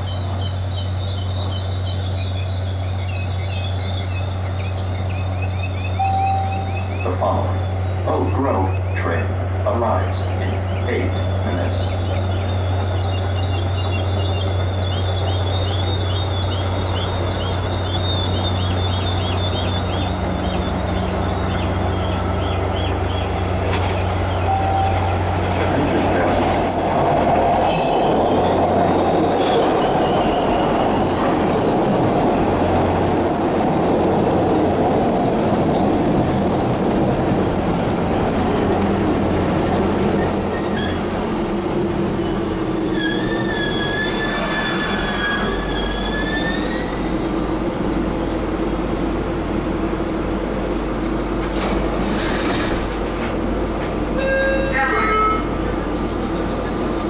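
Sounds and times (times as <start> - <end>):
subway train rumbling: 0.0 - 57.0
train wheel squeaks: 40.2 - 41.1, 42.8 - 47.1.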